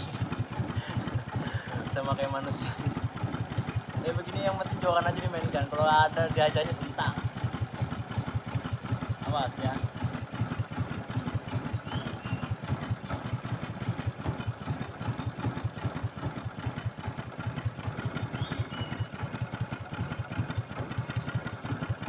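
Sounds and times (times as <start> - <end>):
small boat engine puttering: 0.0 - 22.0.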